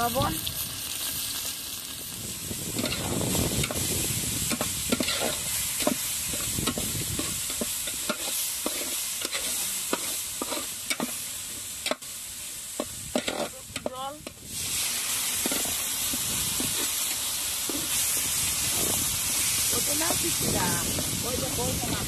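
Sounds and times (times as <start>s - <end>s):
paste sizzling in hot oil: 0.0s - 22.0s
stirrer scraping a pan: 2.7s - 12.0s, 12.8s - 14.4s, 15.3s - 20.3s.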